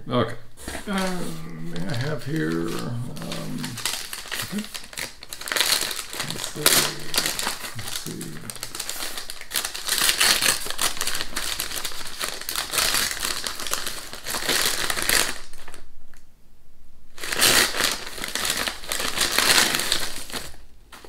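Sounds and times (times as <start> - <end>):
paper wrapping crumpling: 0.6 - 15.9, 17.2 - 21.0.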